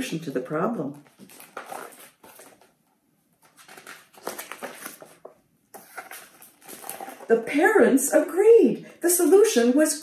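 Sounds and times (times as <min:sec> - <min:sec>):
paper pages rustling: 0:01.0 - 0:07.4.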